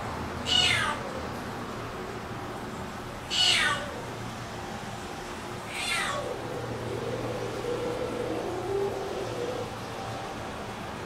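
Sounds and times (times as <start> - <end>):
cat meowing: 0.4 - 1.1, 3.3 - 4.1, 5.7 - 6.4.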